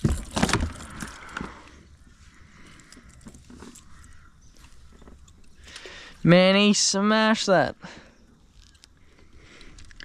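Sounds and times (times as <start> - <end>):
gear knocking and rattling: 0.0 - 1.5.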